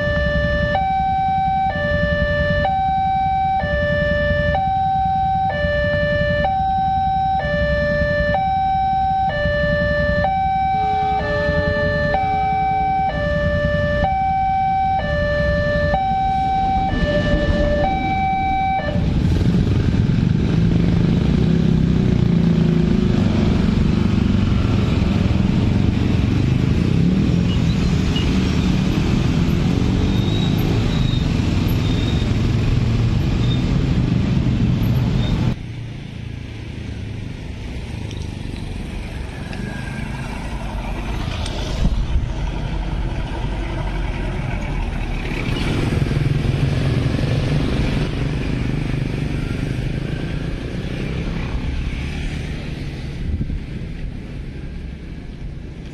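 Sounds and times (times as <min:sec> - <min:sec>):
motorcycle and scooter engines: 0:00.0 - 0:55.9
two-tone crossing alarm chime: 0:14.0 - 0:18.9.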